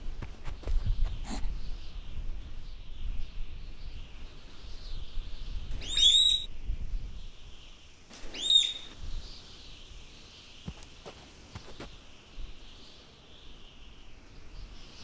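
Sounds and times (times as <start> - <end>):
high chirping calls: 5.7 - 6.5, 8.2 - 9.0.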